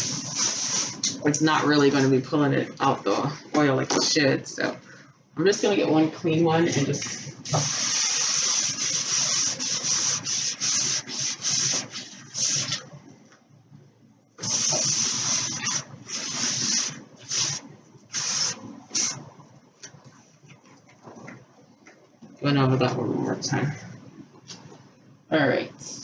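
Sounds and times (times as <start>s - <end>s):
cloth rag rubbing on wood: 0.0s - 1.0s, 6.8s - 12.8s.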